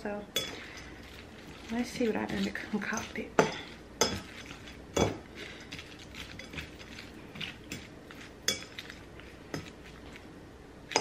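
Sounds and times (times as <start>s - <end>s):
utensil clinking against bowl: 0.4s - 10.2s
utensil scraping bowl: 0.4s - 10.3s.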